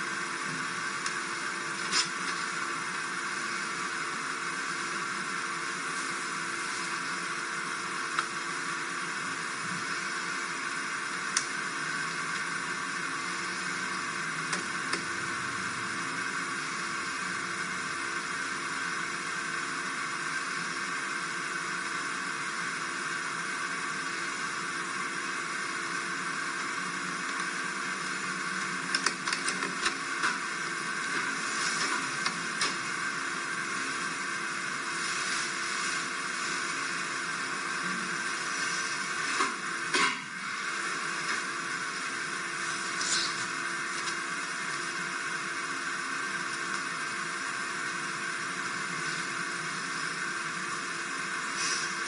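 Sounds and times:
steady hiss: 34.9s - 36.8s.

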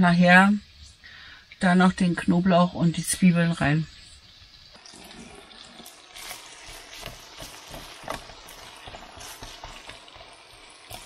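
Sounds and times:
potatoes and bacon sizzling in pan: 0.0s - 11.0s
plastic spatula scraping pan: 6.1s - 11.0s.

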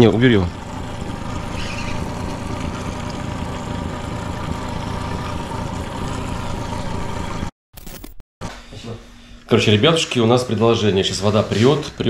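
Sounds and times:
outboard motor running: 0.0s - 7.5s.

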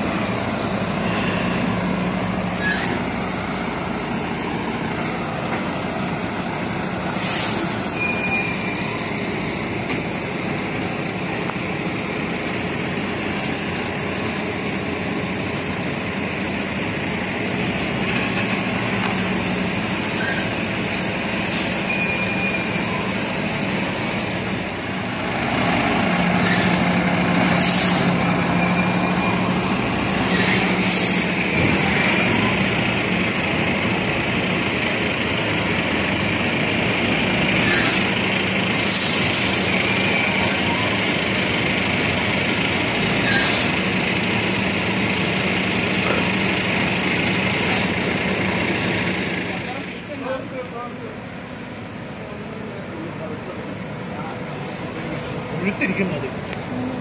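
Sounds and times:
diesel truck engine running: 0.0s - 57.0s
air brake hisses: 7.1s - 8.7s, 21.4s - 22.8s, 26.3s - 28.2s, 30.2s - 31.5s, 37.6s - 39.7s, 43.2s - 43.8s, 47.7s - 48.0s.

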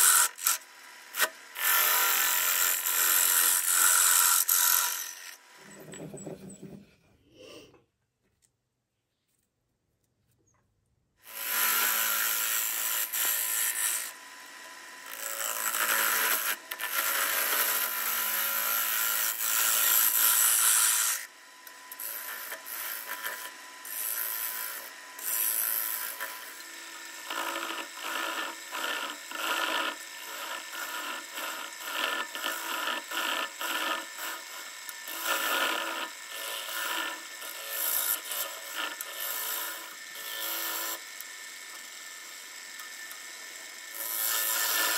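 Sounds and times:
wood lathe running: 0.0s - 6.0s, 11.3s - 44.9s
tool scraping spinning wooden bowl: 0.0s - 7.1s, 21.9s - 41.0s, 43.7s - 44.9s.

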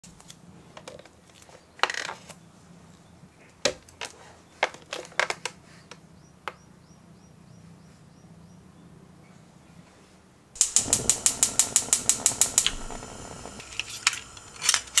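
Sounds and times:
low steady hum: 10.6s - 15.0s.

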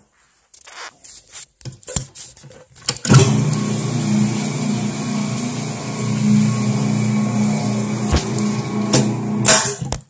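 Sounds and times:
floor polisher motor humming: 3.1s - 9.7s.

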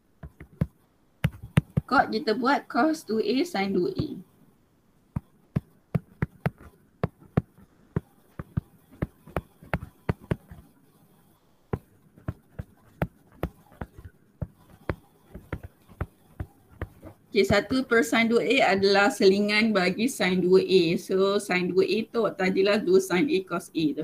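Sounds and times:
stylus tapping on screen: 0.2s - 2.0s, 5.1s - 10.7s, 11.7s - 17.9s.

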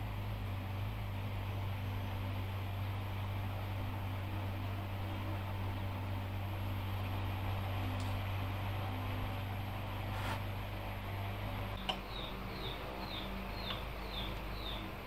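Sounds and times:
constant hiss: 0.0s - 11.8s
low mechanical hum: 0.0s - 15.0s.

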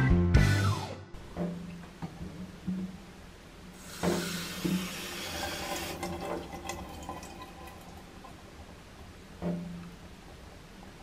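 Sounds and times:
tap water running into steel sink: 3.8s - 8.4s.

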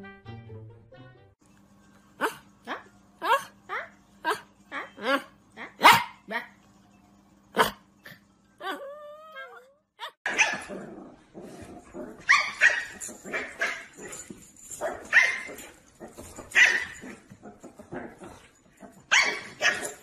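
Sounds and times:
dogs barking and yapping: 4.3s - 6.2s, 10.0s - 10.8s, 11.5s - 20.0s.

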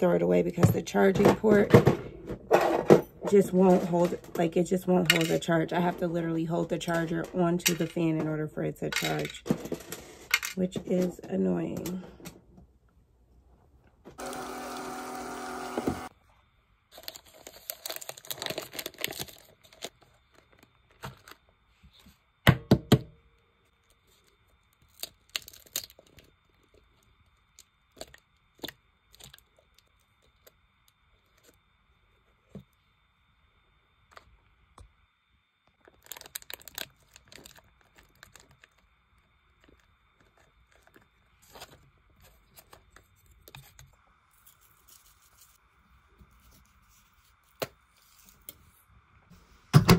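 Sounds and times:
plastic packaging rustling: 16.9s - 22.0s, 23.8s - 30.5s, 35.8s - 45.6s.

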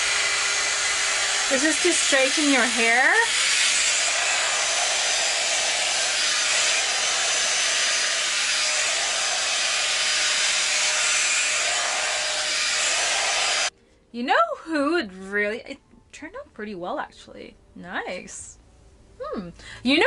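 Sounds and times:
hot air brush blowing: 0.0s - 13.7s.

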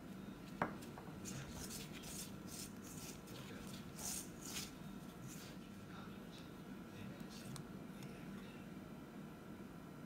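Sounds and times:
hand rubbing flour in bowl: 1.2s - 5.6s.

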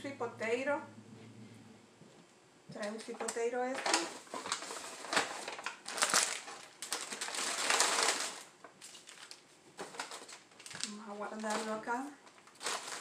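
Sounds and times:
paper bag rustling and crinkling: 2.9s - 13.0s.

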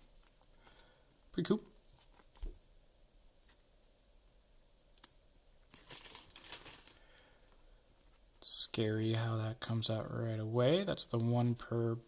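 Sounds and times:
plastic sleeve rustling: 5.0s - 8.3s.

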